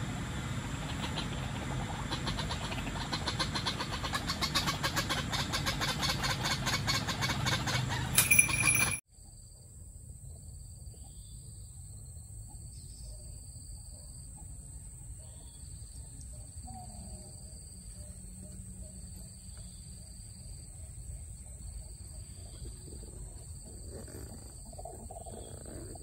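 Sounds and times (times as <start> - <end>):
bird calling in clicking notes: 2.0 - 9.0
insects whining: 15.4 - 26.0.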